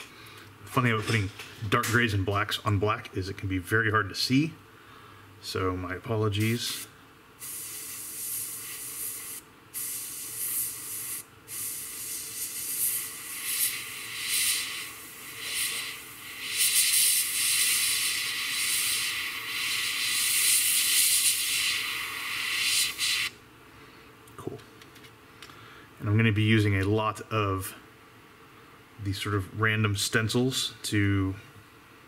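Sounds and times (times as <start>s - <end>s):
airbrush hissing: 6.4s - 23.4s.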